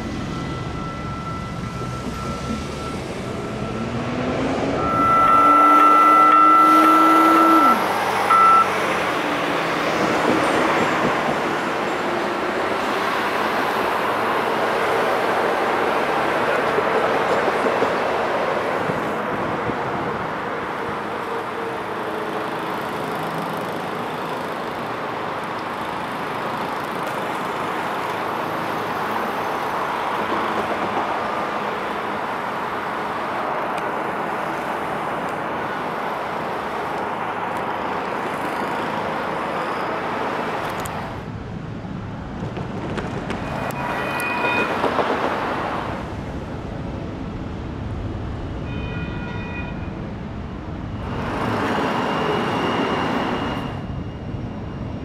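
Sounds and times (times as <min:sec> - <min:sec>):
road traffic passing: 0:00.0 - 0:55.0
short high-pitched crossing tones: 0:00.2 - 0:04.1, 0:04.7 - 0:08.7.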